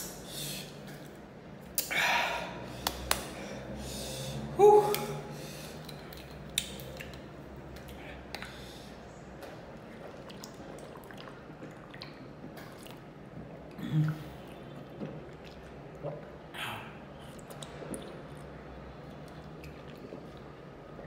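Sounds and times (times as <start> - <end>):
person humming: 4.5 - 5.3
sipping milk: 10.0 - 21.0
mouth clicks and lip smacks: 17.2 - 18.6.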